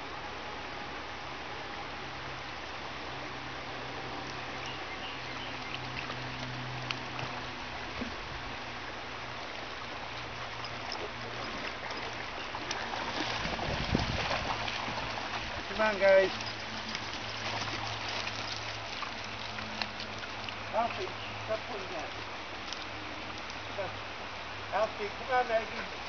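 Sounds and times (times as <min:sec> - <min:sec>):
creek running over stones: 0:00.4 - 0:26.0
dogs splashing in water: 0:10.2 - 0:23.8.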